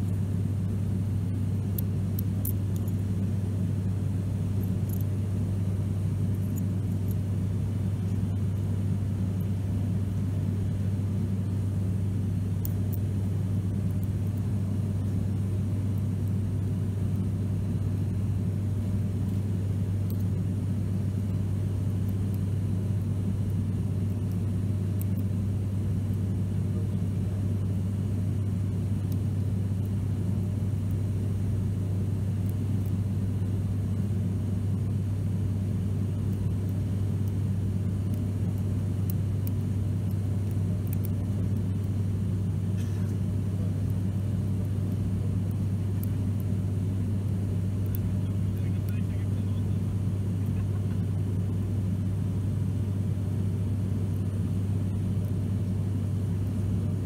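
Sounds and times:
propeller drone in aircraft cabin: 0.0 - 57.0.

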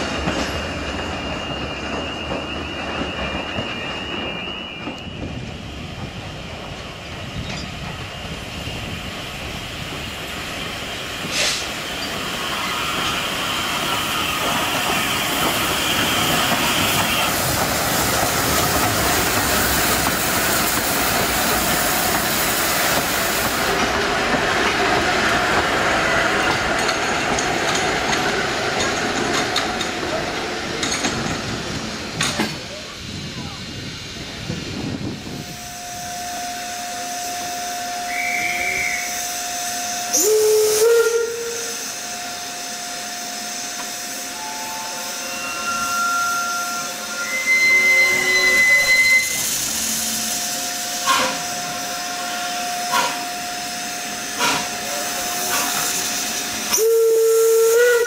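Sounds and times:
steam hissing: 0.0 - 58.0
wheels squealing: 44.4 - 53.2.

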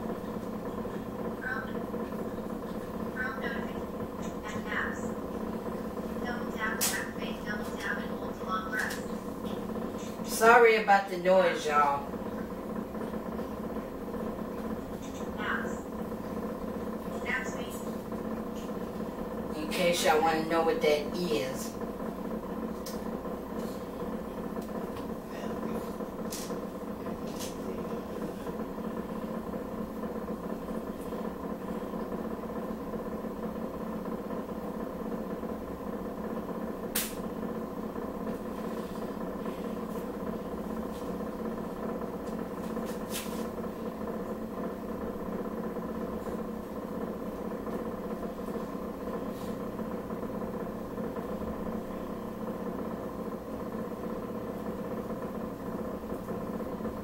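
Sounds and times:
fan motor humming: 0.0 - 57.0
short sharp clicks: 37.0 - 37.2.

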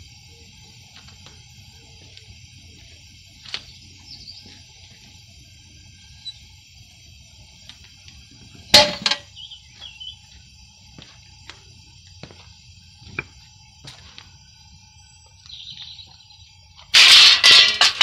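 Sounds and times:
steel lid clanging: 8.7 - 9.3, 16.9 - 18.0.

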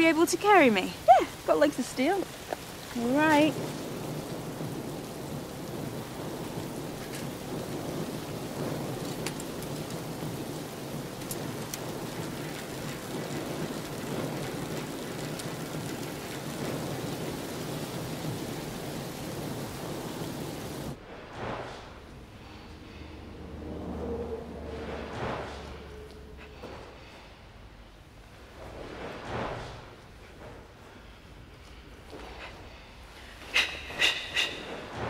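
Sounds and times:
steady rain hiss: 0.0 - 35.0
faint ticks: 11.2 - 12.9.

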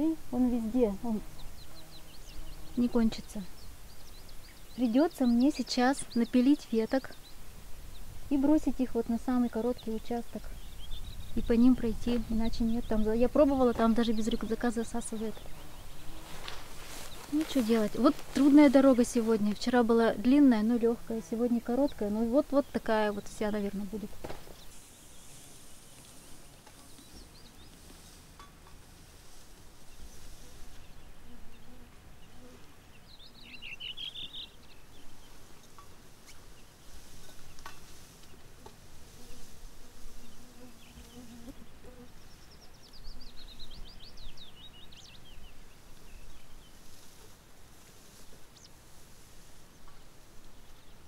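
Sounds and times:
flies buzzing: 0.0 - 51.0
high bird chirps: 30.7 - 36.7.

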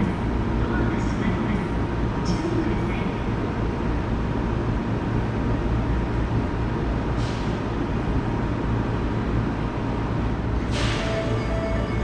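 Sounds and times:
electric train rumbling: 0.0 - 12.0
air hiss: 10.7 - 11.3.

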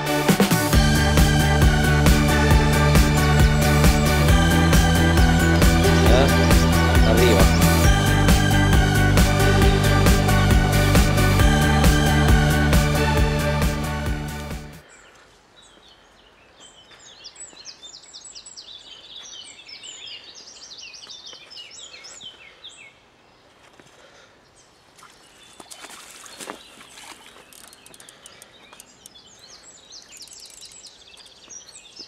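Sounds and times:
small birds chirping: 3.0 - 8.2, 14.8 - 32.0
water splashing: 24.9 - 28.0.

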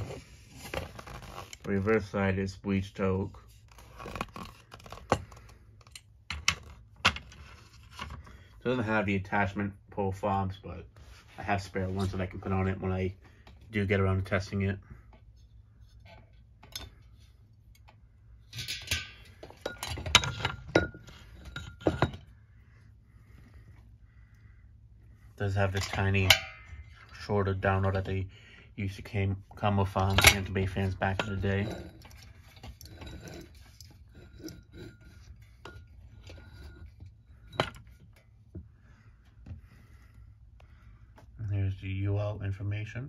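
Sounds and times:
clinks and knocks of fan motor: 18.5 - 22.3.

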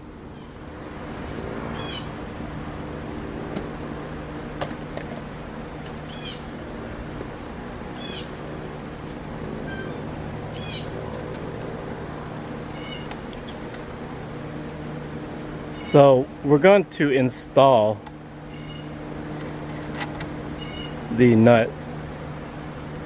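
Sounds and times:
steady low hum: 0.0 - 23.0
high-pitched animal calls: 1.7 - 2.1, 6.1 - 6.5, 8.0 - 8.3, 9.6 - 10.9, 12.7 - 13.6, 18.5 - 19.0, 20.6 - 21.0.

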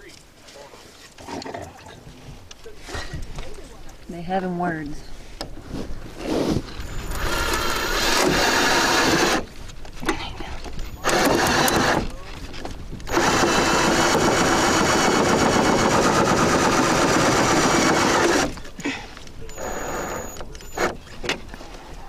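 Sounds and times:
cordless drill driving screws: 6.8 - 9.5, 10.8 - 12.1, 13.0 - 18.7, 19.5 - 21.2.

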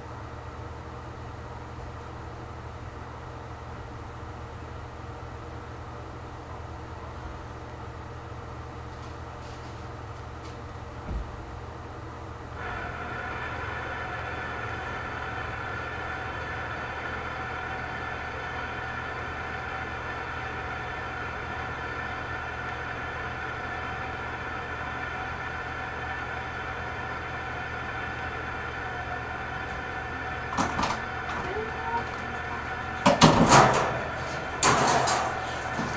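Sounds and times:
constant low hum: 0.0 - 35.9
machine humming and whining: 12.4 - 35.9
wire crate knocking and rattling: 30.5 - 35.9.

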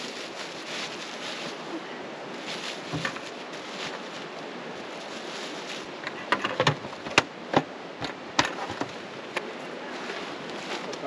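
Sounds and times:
steady background hiss: 0.0 - 11.0
sharp clicks and knocks: 6.0 - 9.5.

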